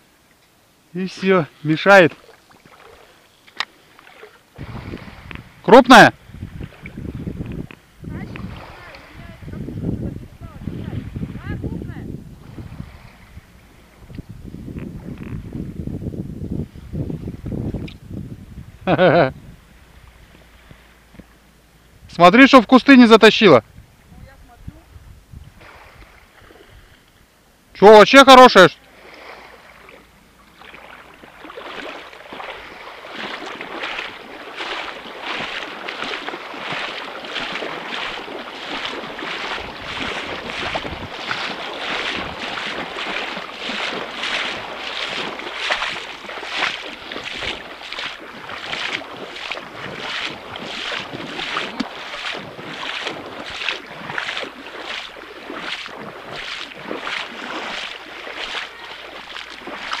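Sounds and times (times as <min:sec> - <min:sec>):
footsteps splashing through water: 0:01.1 - 0:11.5, 0:28.5 - 1:00.0.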